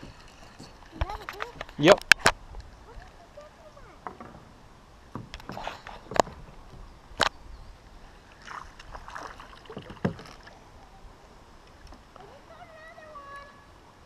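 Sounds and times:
fish splashing at surface: 8.4s - 10.6s.

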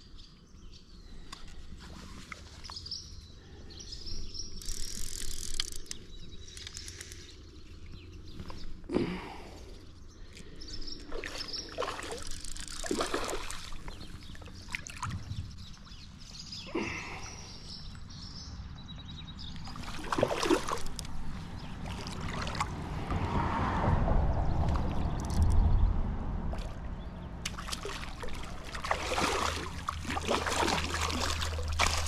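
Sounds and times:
creek water running: 11.0s - 16.0s, 19.6s - 23.3s, 26.5s - 32.0s
fish splashing: 11.1s - 15.2s, 19.6s - 23.3s, 26.5s - 32.0s
steady low rumble: 20.9s - 32.0s.

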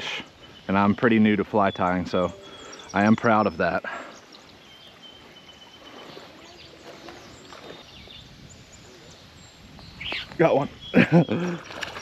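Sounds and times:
faint high chirps: 0.1s - 7.8s.

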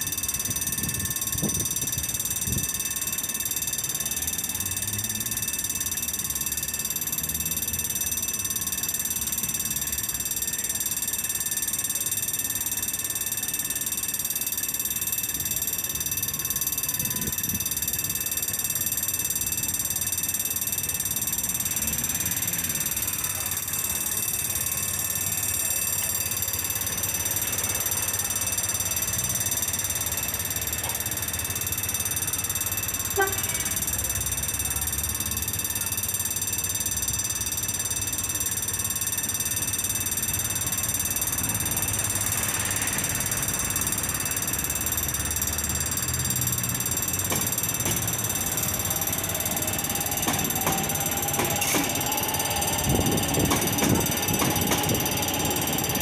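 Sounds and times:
level crossing warning bell: 0.0s - 56.0s.

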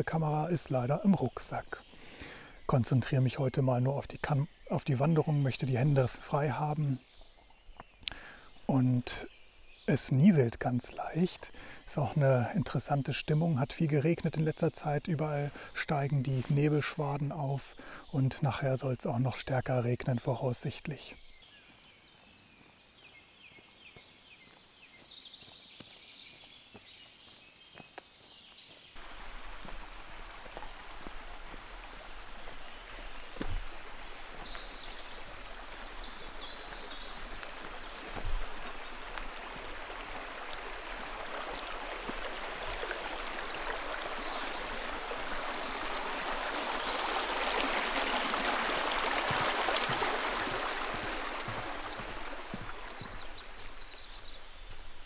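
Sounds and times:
brook rushing: 29.0s - 55.0s
bird chirps: 32.1s - 40.6s.

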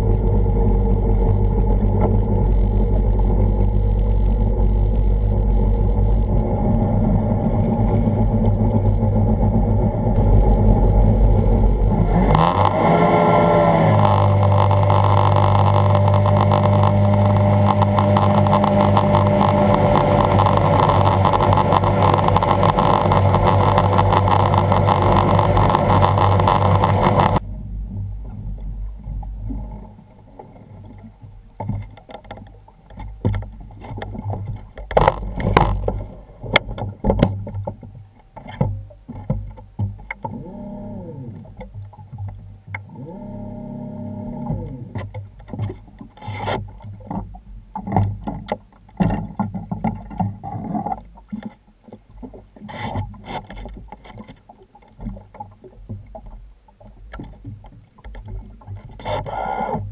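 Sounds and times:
personal watercraft engine revving: 0.0s - 30.3s, 34.9s - 37.5s, 40.2s - 41.8s, 42.7s - 46.7s
water rushing past hull: 0.0s - 59.9s.

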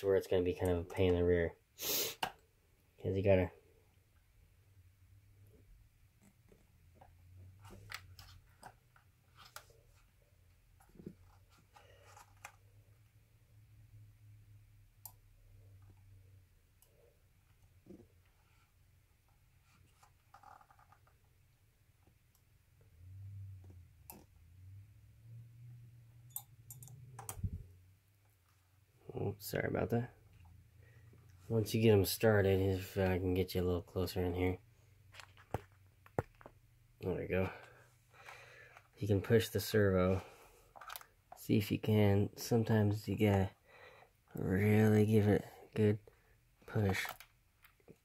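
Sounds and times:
hands handling parts: 35.0s - 36.7s, 40.1s - 41.5s.

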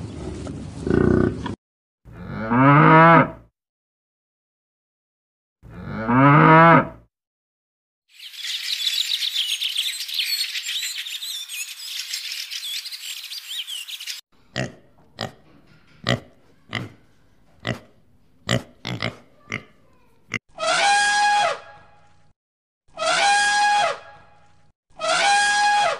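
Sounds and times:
cow mooing: 2.1s - 3.4s, 5.7s - 7.0s
dense high chirping: 8.1s - 14.2s.

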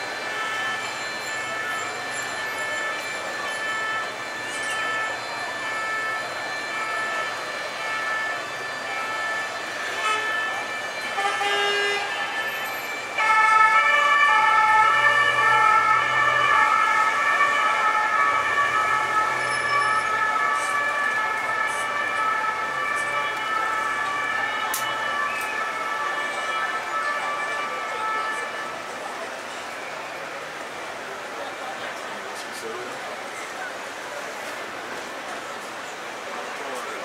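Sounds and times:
emergency vehicle siren: 0.0s - 37.0s
traffic rumble: 0.0s - 37.0s.

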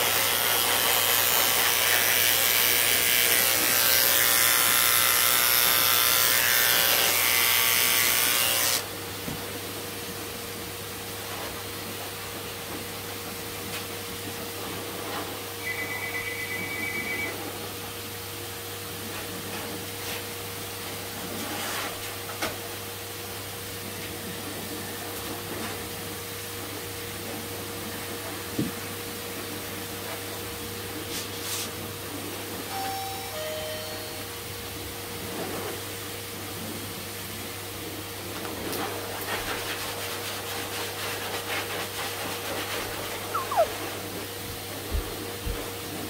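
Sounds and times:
electrical hum: 15.4s - 18.0s
high double beep: 15.6s - 17.4s.

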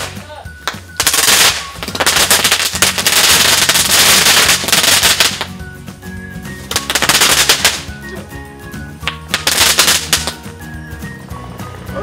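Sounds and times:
firework crackling pops: 0.0s - 5.7s, 6.5s - 8.0s, 9.0s - 10.5s
background music: 0.0s - 12.0s.

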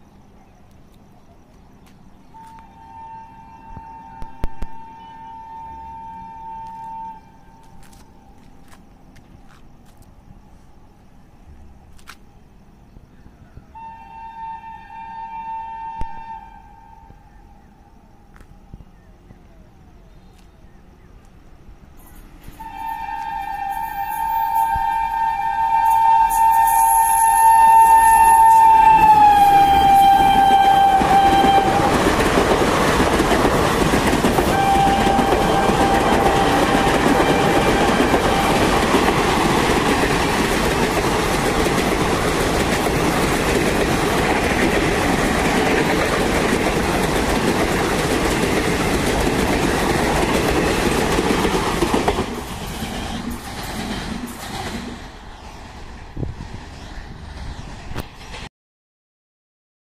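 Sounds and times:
train horn blaring: 2.3s - 8.4s, 13.7s - 17.7s, 22.5s - 32.4s, 34.3s - 40.2s
train wheels clattering over rail joints: 29.8s - 55.5s.

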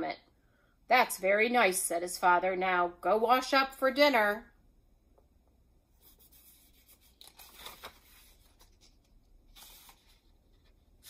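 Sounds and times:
book pages turning: 6.0s - 11.0s.

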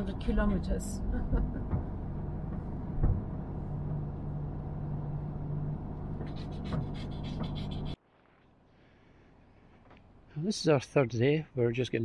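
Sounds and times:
car engine and tyre drone: 1.0s - 8.0s
low thump: 1.4s - 4.2s.

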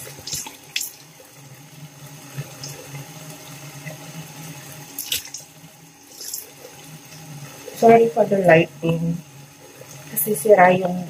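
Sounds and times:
water splashes: 0.0s - 8.2s.

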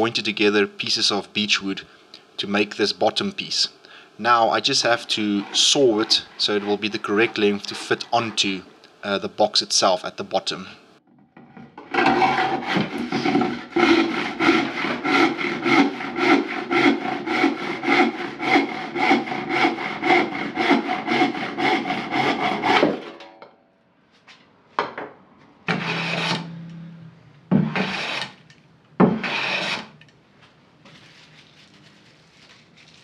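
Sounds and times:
hand plane strokes on wood: 4.6s - 8.6s, 12.0s - 22.9s, 27.7s - 28.4s, 29.2s - 29.9s
handsaw cutting wood: 4.6s - 8.6s, 12.0s - 23.0s, 25.7s - 26.5s, 27.6s - 28.4s, 29.0s - 30.0s.

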